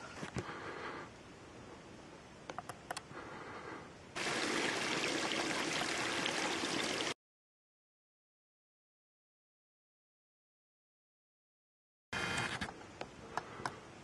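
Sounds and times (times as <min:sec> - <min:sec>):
outdoor hiss: 0:00.0 - 0:07.2
faint clicks: 0:02.5 - 0:03.1
creek trickling and babbling: 0:04.2 - 0:07.2.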